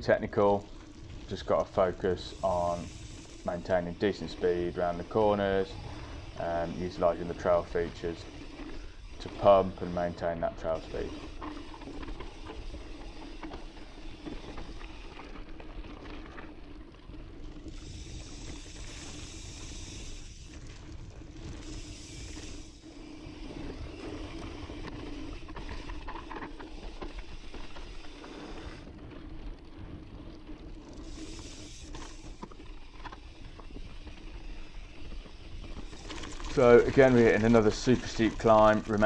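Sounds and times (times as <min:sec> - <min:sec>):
bike rattling: 0:00.0 - 0:39.0
bike tyre trail noise: 0:00.0 - 0:39.0
hiss: 0:02.2 - 0:10.2, 0:17.7 - 0:20.5, 0:21.6 - 0:25.2, 0:31.0 - 0:32.4.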